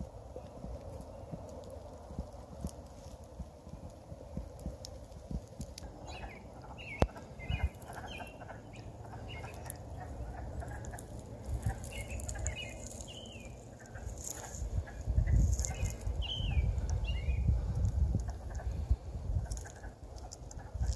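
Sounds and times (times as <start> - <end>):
frogs calling: 5.7 - 17.4, 18.2 - 20.9
footsteps on dry leaves: 9.3 - 16.2.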